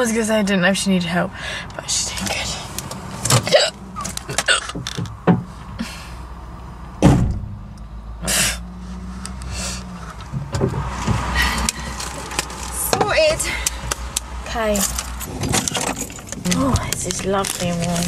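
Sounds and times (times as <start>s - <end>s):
car door opening: 2.3s - 5.8s, 7.0s - 7.6s, 14.8s - 18.0s
car bonnet shutting thud: 7.0s - 7.6s.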